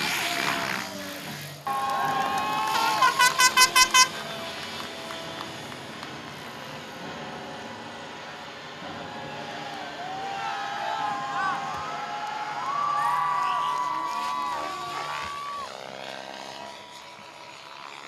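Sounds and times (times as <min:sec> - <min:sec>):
model helicopter whining: 0:00.0 - 0:09.1, 0:11.1 - 0:18.0
horn tooting: 0:01.6 - 0:05.8.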